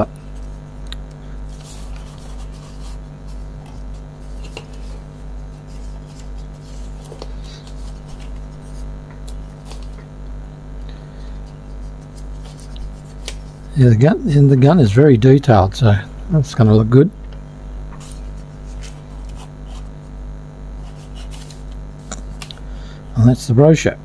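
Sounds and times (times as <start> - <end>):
pulsing low hum: 0.0 - 24.0
paper pages rustling: 1.5 - 10.1, 11.6 - 13.7, 17.9 - 19.9, 20.8 - 22.6.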